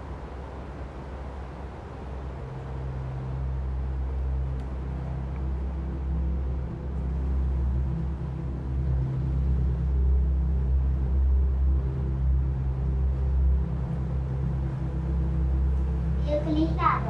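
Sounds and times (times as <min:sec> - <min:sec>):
dark ambient drone: 0:00.0 - 0:17.0.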